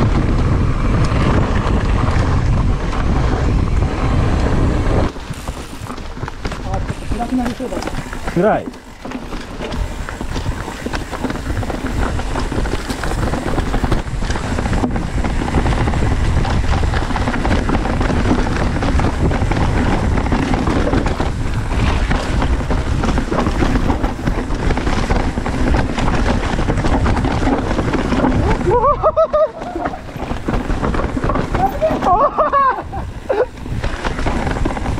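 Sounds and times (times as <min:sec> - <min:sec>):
bike knocks and rattles: 0:00.0 - 0:34.9
bike tyres rolling on dirt: 0:00.0 - 0:34.9
wind buffeting microphone: 0:00.0 - 0:34.9.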